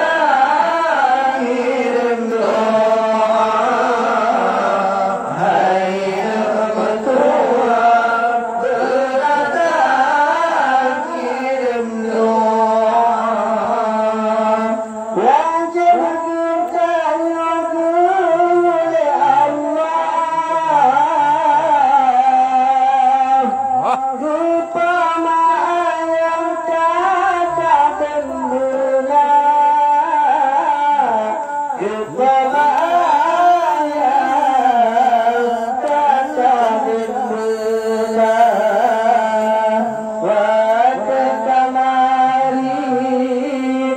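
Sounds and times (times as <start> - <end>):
men singing through loudspeakers: 0.0 - 43.9
solo singer with long held notes: 0.0 - 43.9.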